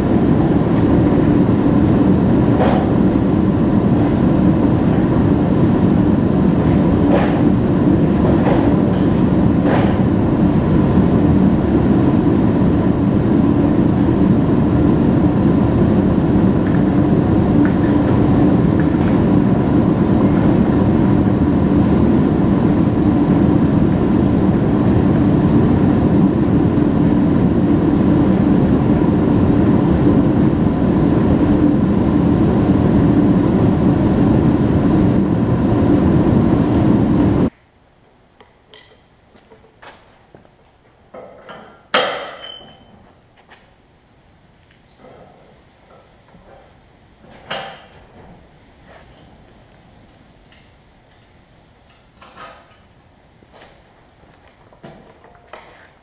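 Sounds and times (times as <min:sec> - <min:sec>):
mechanical running noise with whine: 0:00.0 - 0:37.5.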